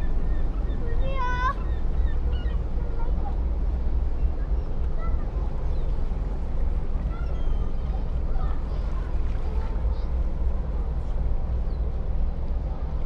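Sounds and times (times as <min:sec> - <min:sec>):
faint chirping calls: 0:00.0 - 0:02.7.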